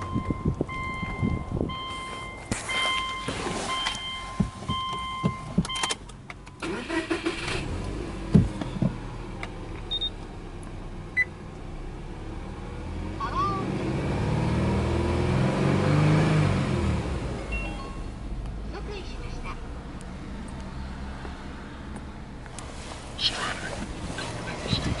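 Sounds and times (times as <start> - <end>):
warning chime beeping: 0.0 - 5.9, 17.4 - 18.2
car engine starting and running: 0.0 - 25.0.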